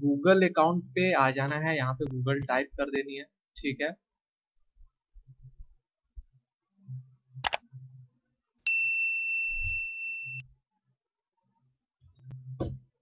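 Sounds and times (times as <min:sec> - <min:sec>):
bright bell ding: 0:08.7 - 0:10.4.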